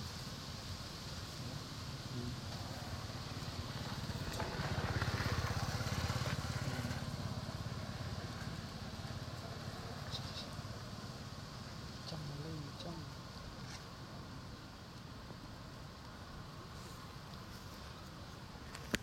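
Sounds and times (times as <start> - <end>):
vehicle engine passing by: 2.2 - 11.4.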